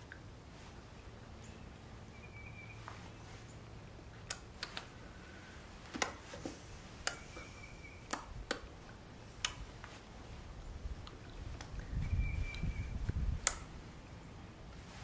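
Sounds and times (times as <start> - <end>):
sharp clicks and taps: 4.2 - 4.9, 5.9 - 6.2, 7.0 - 8.7, 13.4 - 13.7.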